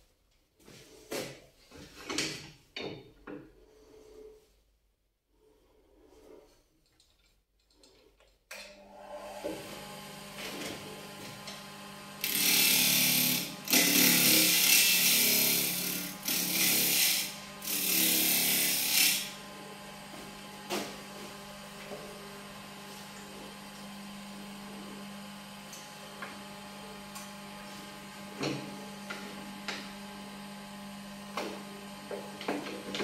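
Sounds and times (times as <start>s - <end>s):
wood lathe motor humming: 8.8s - 33.0s
tool scraping spinning wood: 12.2s - 19.5s.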